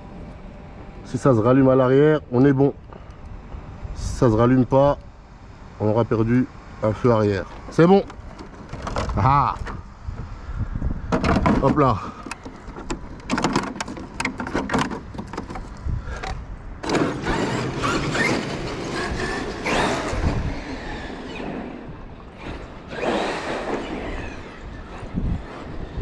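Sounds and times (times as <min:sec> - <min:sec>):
sharp clicks and knocks: 0:11.1 - 0:17.0
rc truck motor whine: 0:16.8 - 0:26.0.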